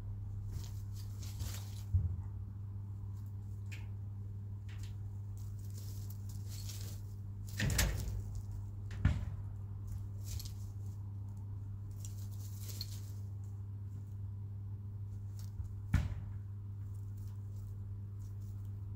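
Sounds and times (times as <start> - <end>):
chickens rustling and scratching: 0.0 - 18.9
steady low hum: 0.0 - 18.9.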